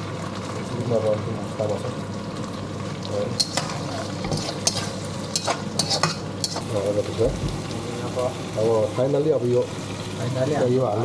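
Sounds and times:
food sizzling in a pan: 0:00.0 - 0:11.0
metal utensil scraping a pan: 0:03.4 - 0:06.7.

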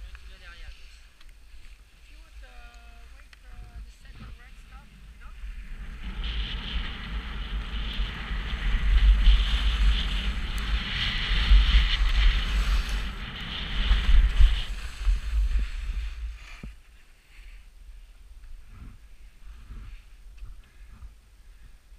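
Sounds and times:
wind buffeting microphone: 0:00.0 - 0:16.8
skis carving on snow: 0:00.0 - 0:21.2.

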